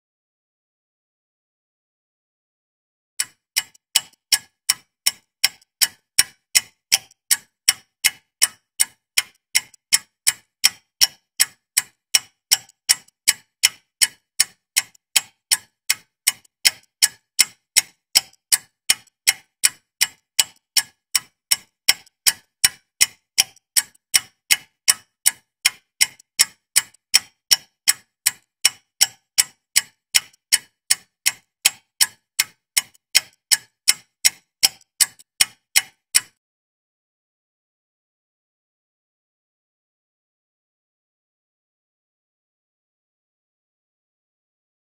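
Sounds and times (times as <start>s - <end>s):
clock ticking: 3.2s - 36.4s.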